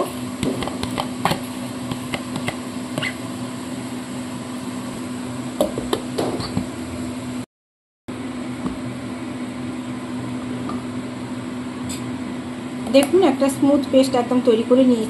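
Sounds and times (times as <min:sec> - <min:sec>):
low electric hum: 0:08.1 - 0:15.0.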